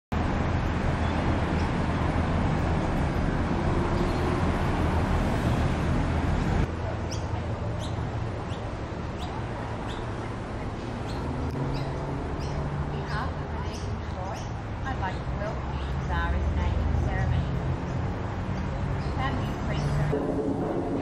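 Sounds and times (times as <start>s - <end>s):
road traffic rumble: 0.1s - 21.0s
bird chirps: 7.0s - 16.1s.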